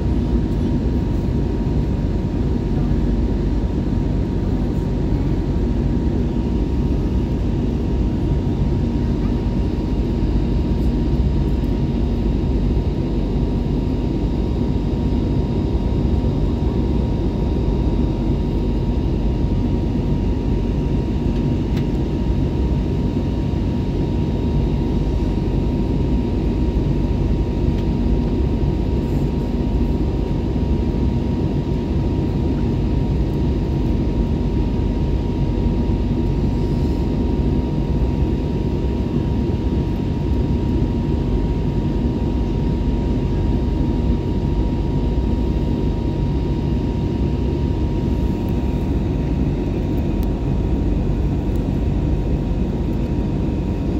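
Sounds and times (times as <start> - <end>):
thin steady whine: 0.0 - 53.9.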